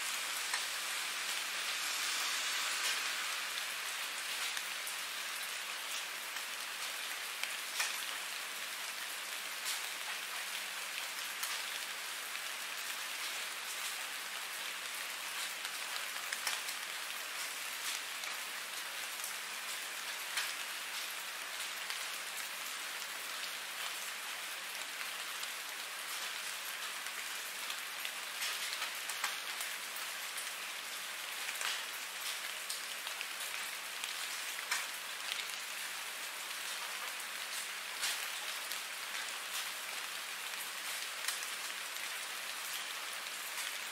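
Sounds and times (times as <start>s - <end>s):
steady rain hiss: 0.0s - 43.9s
rain drop ticks: 0.4s - 8.2s, 15.3s - 18.4s, 19.2s - 21.1s, 26.1s - 29.8s, 31.5s - 35.9s, 36.5s - 43.8s.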